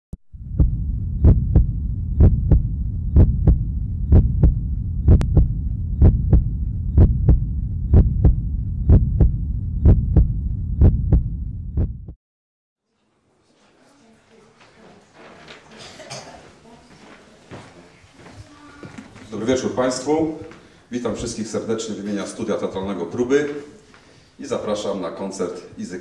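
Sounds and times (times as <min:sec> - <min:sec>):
low steady hum: 0:00.3 - 0:11.6
heartbeat thumps: 0:00.3 - 0:12.2.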